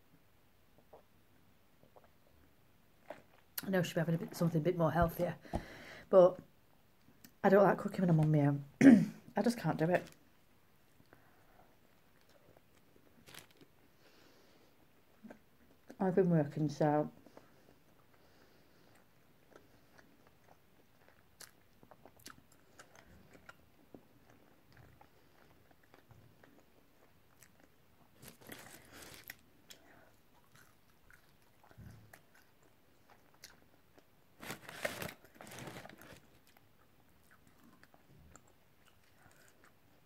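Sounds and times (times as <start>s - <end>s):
chewing fries: 1.7s - 3.7s, 10.9s - 16.0s, 17.2s - 40.0s
paper packet rustling: 13.2s - 13.6s, 34.4s - 36.4s.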